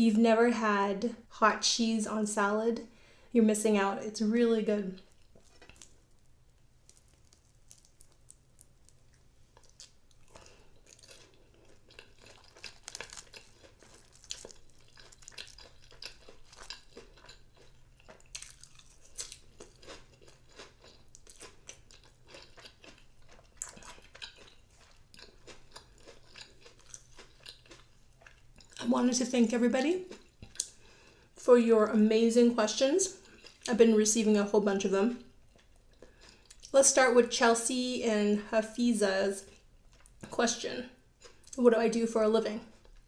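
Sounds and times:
crisp crunching of food: 0:04.9 - 0:28.9
wet chewing: 0:04.9 - 0:28.9, 0:30.0 - 0:30.8.

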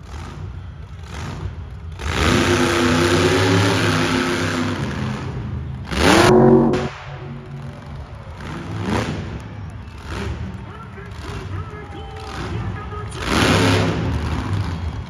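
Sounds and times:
truck engine revving: 0:02.0 - 0:10.5, 0:13.2 - 0:15.0.

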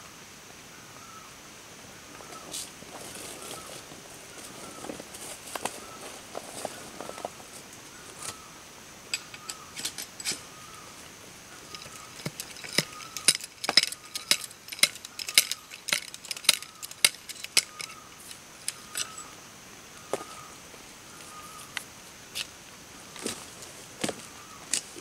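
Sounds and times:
high insect drone: 0:00.0 - 0:25.0
wooden stick clicking and cracking: 0:11.7 - 0:19.1.

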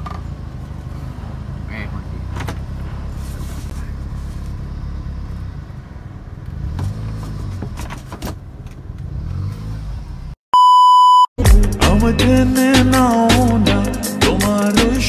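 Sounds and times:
car engine running: 0:01.5 - 0:10.3
electronic beep tone: 0:10.6 - 0:11.3.

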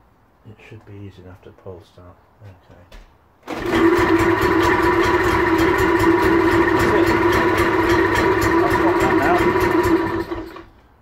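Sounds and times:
two-stroke boat engine running: 0:03.6 - 0:10.6.

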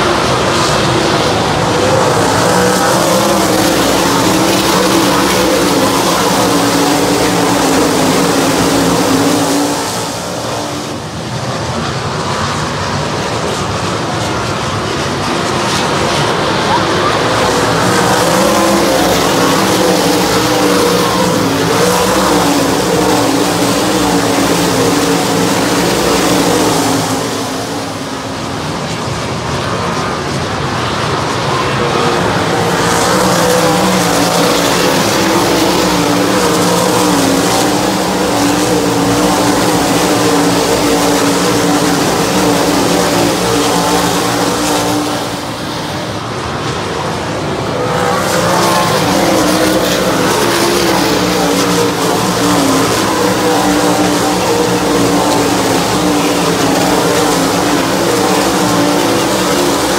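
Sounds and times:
race car engines passing: 0:00.0 - 0:59.9.

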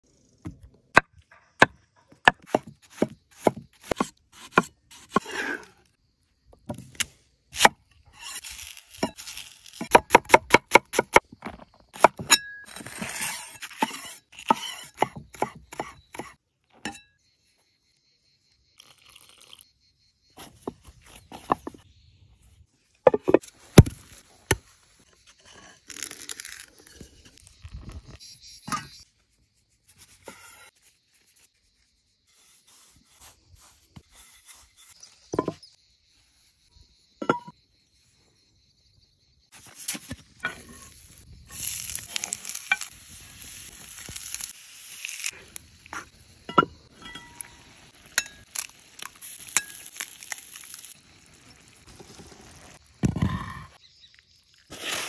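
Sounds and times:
knife scraping board: 0:12.7 - 0:16.3.

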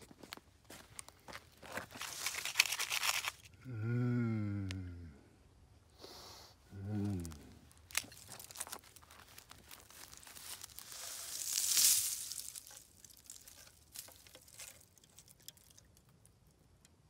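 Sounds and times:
footsteps crunching through scrub: 0:00.0 - 0:03.2, 0:07.2 - 0:14.9
low voice-like sound: 0:03.6 - 0:05.4, 0:06.7 - 0:07.6
brushing hiss: 0:06.0 - 0:06.6, 0:10.1 - 0:14.8.

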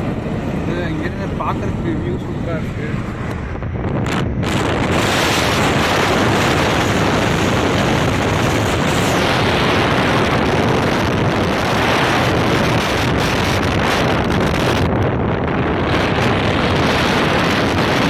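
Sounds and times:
road rush: 0:00.0 - 0:18.0
wind buffeting microphone: 0:00.0 - 0:18.0.

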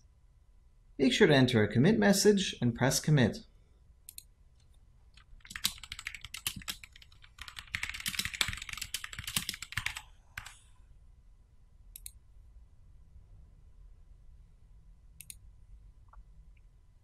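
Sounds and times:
typing on a keyboard: 0:05.2 - 0:10.6.

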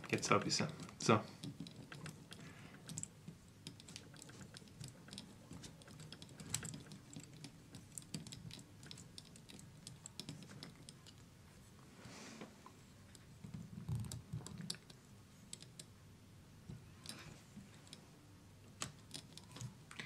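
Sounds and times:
fingers and screwdriver tapping: 0:00.0 - 0:11.2.

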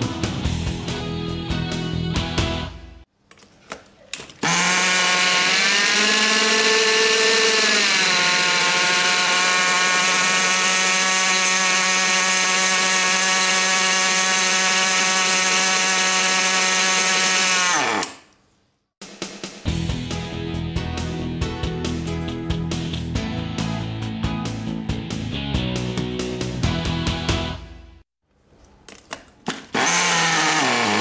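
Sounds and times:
small engine running at high idle: 0:04.4 - 0:18.0, 0:29.8 - 0:31.0.

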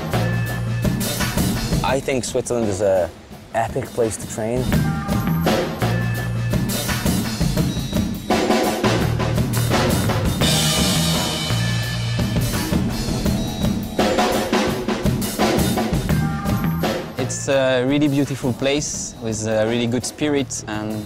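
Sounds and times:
drum kit beat: 0:00.0 - 0:19.7
bass line: 0:04.6 - 0:17.5.

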